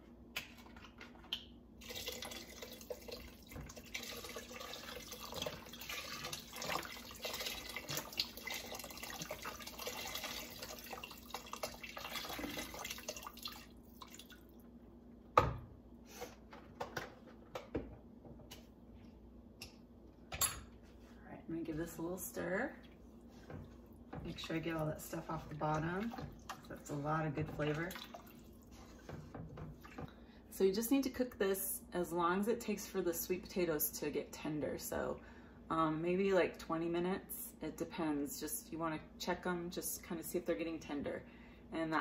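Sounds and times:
liquid pouring into a pot: 1.8 - 14.5, 25.7 - 28.8.

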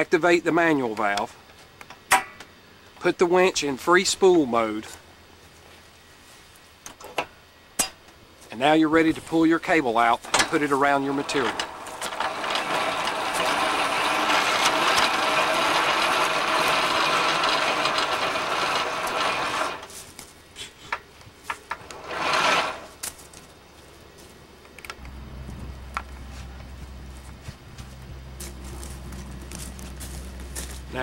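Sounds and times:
low steady hum: 0.0 - 31.0
winch drum spinning: 10.3 - 19.9, 21.7 - 23.0
cable dragging: 10.3 - 20.0, 21.7 - 23.1
footsteps on wood chips: 25.5 - 31.0.

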